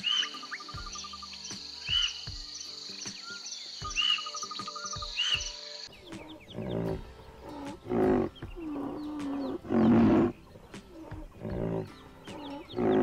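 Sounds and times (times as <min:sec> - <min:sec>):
bird calling: 0:00.0 - 0:13.0
insects trilling: 0:00.0 - 0:13.0
rhinoceros deep calls: 0:06.0 - 0:13.0.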